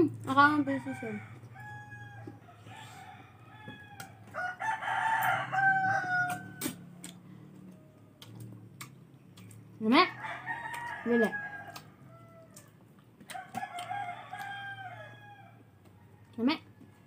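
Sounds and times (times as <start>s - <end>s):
rooster crowing: 0.6s - 6.9s, 10.2s - 17.0s.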